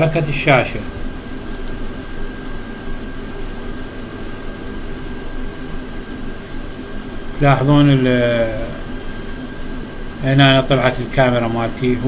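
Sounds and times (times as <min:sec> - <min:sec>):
background hum and hiss: 0:00.0 - 0:12.0.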